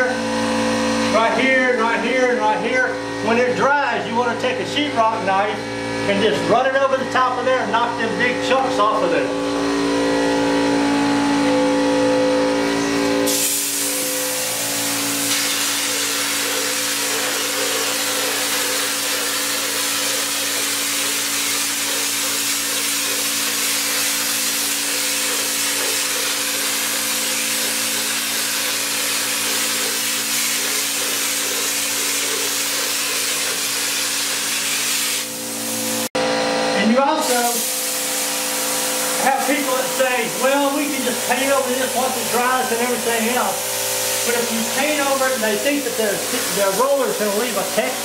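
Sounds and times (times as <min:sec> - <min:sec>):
air compressor humming: 0:00.0 - 0:48.0
hopper gun spraying air: 0:13.2 - 0:36.1, 0:37.2 - 0:48.0.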